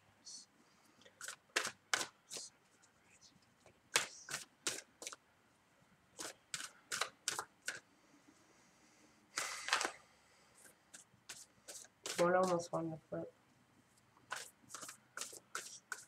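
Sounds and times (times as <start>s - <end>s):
cards snapping down: 1.2s - 2.2s, 6.2s - 7.8s, 9.4s - 10.0s
cards rustling: 6.2s - 7.8s, 9.4s - 10.0s, 10.9s - 12.6s, 14.3s - 16.0s.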